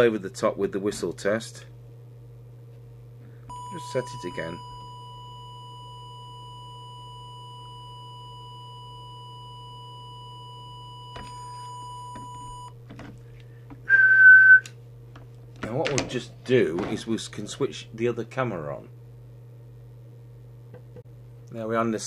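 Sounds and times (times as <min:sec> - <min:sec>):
low hum: 0:00.0 - 0:21.5
loud steady whistle: 0:03.5 - 0:12.7, 0:13.9 - 0:14.7
steady test tone: 0:03.5 - 0:12.7.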